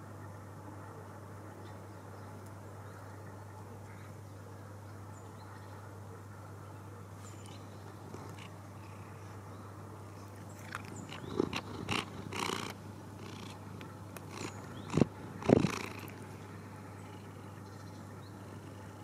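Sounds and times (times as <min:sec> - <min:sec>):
cat purring: 0:07.9 - 0:09.0, 0:10.6 - 0:17.6.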